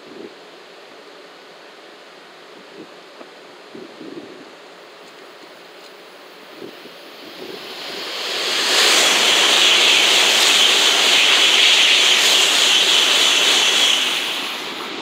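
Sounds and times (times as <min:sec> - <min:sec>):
high-speed train passing: 0:05.6 - 0:15.0.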